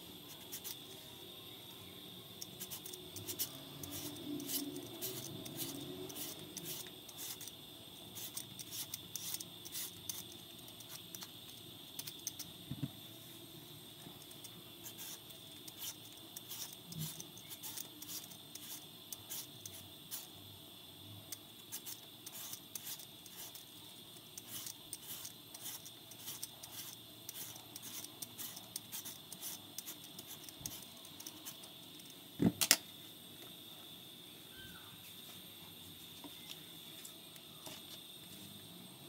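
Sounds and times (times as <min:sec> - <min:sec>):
peeler scraping sweet potato: 0:02.4 - 0:11.3, 0:14.2 - 0:20.3, 0:21.7 - 0:23.7, 0:24.3 - 0:31.7.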